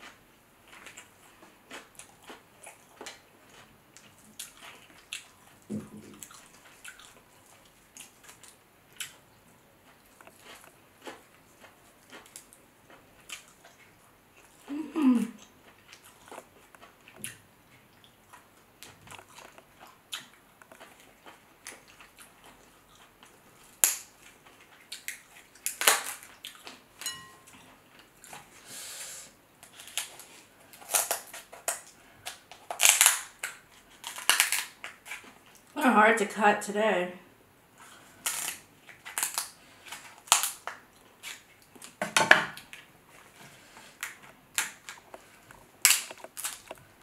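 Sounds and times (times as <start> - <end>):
crab shell cracking and crunching: 23.6 - 26.8, 29.6 - 35.7, 38.1 - 42.9, 43.9 - 46.9.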